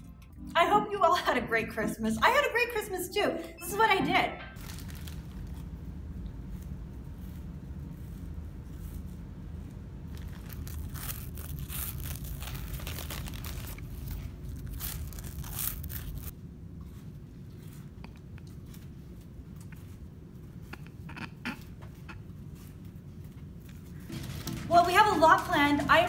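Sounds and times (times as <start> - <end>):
snack bag crinkling: 4.6 - 5.9, 10.0 - 16.3
crunching and chewing snacks: 4.6 - 6.8, 10.0 - 16.3
low steady rumble: 4.6 - 26.0.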